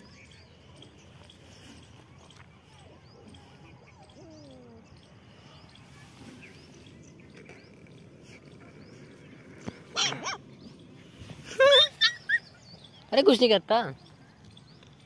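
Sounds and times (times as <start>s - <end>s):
animal cry: 9.9s - 10.4s.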